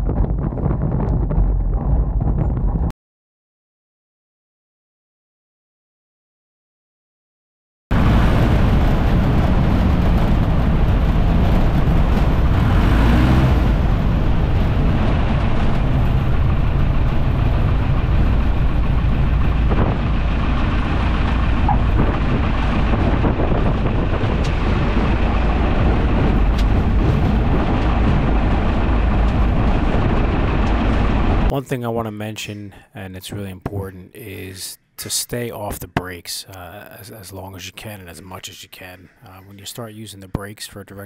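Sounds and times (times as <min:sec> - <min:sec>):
heavy wind noise: 0:00.0 - 0:02.9, 0:07.9 - 0:31.6
airplane engine and propeller: 0:07.9 - 0:31.7.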